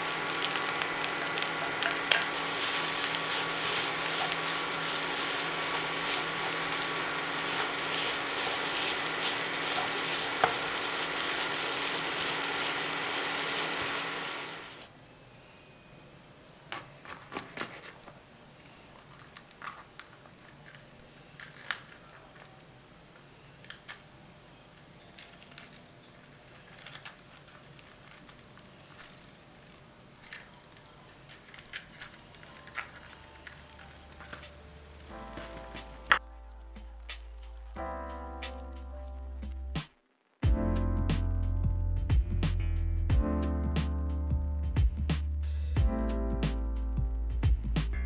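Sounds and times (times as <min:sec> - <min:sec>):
food sizzling in a frying pan: 0:00.0 - 0:14.9, 0:32.6 - 0:36.2.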